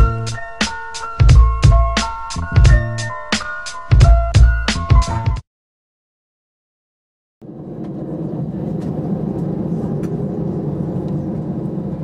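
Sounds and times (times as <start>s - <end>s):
jet engines low rumble: 7.4s - 12.0s.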